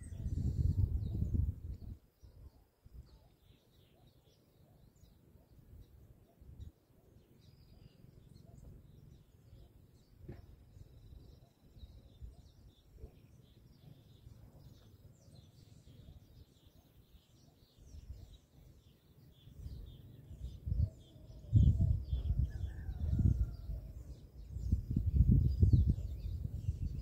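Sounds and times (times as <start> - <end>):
wind gusts on microphone: 0.0 - 3.0, 19.6 - 27.0
small birds chirping: 0.0 - 27.0.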